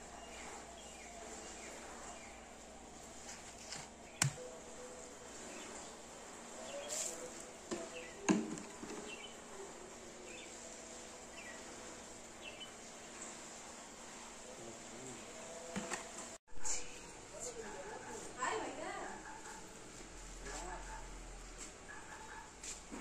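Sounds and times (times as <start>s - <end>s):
sharp knocks of cement pots: 4.2s - 4.4s.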